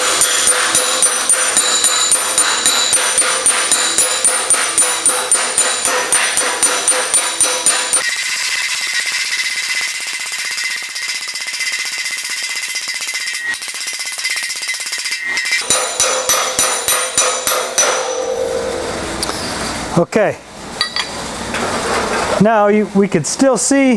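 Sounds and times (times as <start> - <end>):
rapid metal strike rattle: 0.0 - 19.2
hammer striking sheet metal: 0.0 - 19.5.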